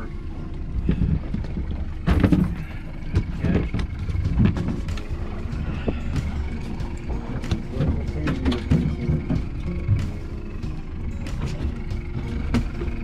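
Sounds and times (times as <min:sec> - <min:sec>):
boat engine low rumble: 0:00.0 - 0:13.0.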